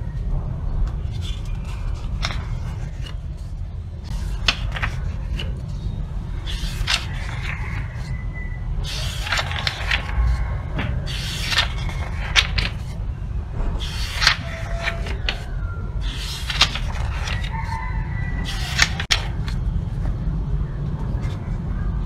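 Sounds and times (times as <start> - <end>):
steady low hum: 0.0 - 22.0
book pages turning: 0.9 - 8.2, 8.8 - 20.3, 21.0 - 21.6
pages riffled: 1.0 - 8.1, 8.8 - 13.0, 13.8 - 17.8, 18.4 - 19.6.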